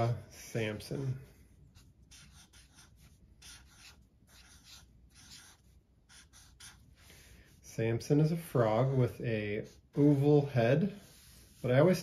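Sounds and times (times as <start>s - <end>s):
marker scratching on paper: 1.0s - 7.6s, 8.9s - 12.0s.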